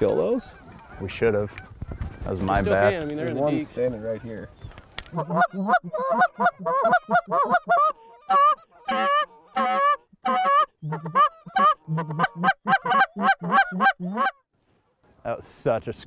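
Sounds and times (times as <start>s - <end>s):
goose call honks and clucks: 5.1s - 14.4s.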